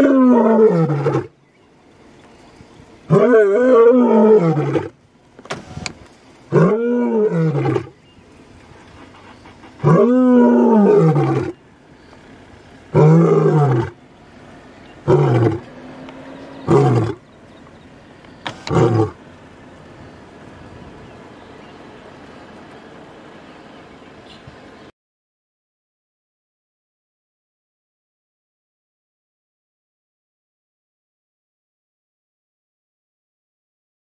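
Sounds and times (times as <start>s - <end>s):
lion roaring: 0.0s - 1.3s, 3.1s - 5.0s, 6.5s - 8.0s, 9.7s - 11.6s, 12.9s - 14.0s, 15.0s - 17.3s, 18.5s - 19.2s.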